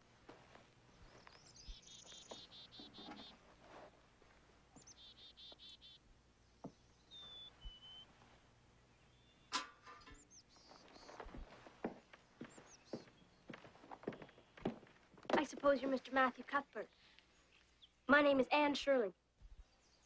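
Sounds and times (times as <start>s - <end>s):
songbird trilling: 1.0s - 3.4s, 4.8s - 6.0s, 6.7s - 8.1s, 9.0s - 11.2s.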